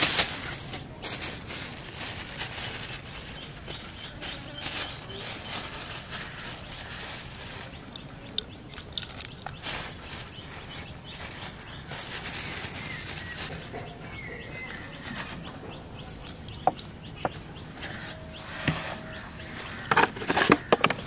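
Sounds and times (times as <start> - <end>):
faint bird chirps: 2.5 - 21.0
powder rubbed into rice: 9.6 - 13.5.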